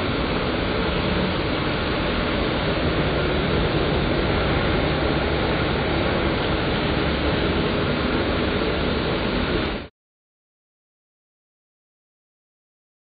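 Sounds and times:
forklift engine running: 0.0 - 9.9.

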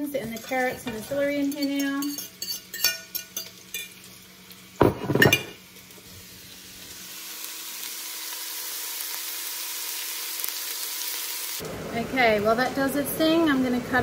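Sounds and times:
vegetables sizzling in fat: 0.0 - 13.8
pot knocks: 4.8 - 5.5.

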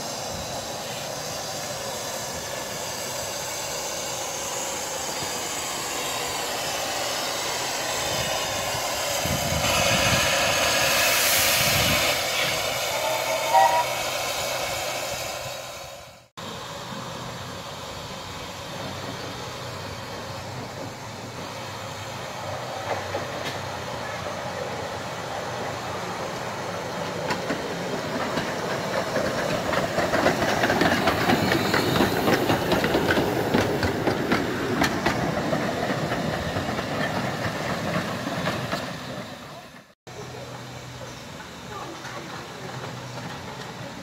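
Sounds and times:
steam locomotive running: 0.0 - 44.0
wheels clicking over rail joints: 22.4 - 24.8, 25.6 - 44.0.

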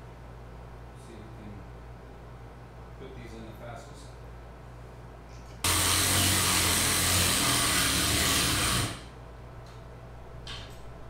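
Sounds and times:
electric ratchet driving screw: 5.6 - 9.1.

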